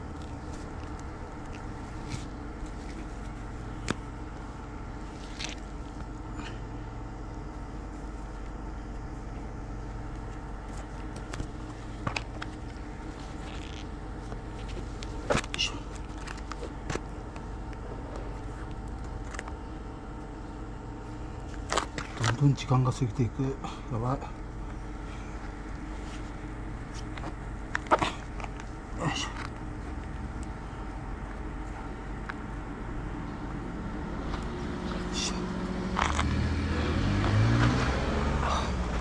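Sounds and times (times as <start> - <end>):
fabric rustling: 0.0 - 6.2
steady mechanical hum: 0.0 - 39.0.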